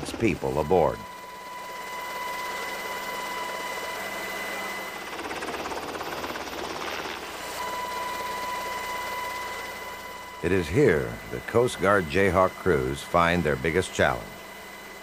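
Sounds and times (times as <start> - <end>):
helicopter running: 0.0 - 15.0.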